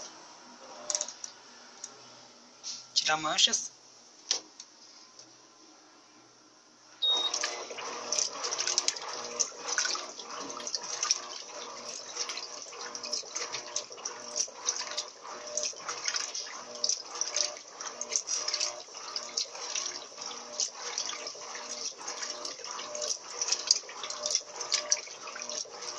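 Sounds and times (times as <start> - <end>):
washing machine water sloshing: 7.0 - 25.9.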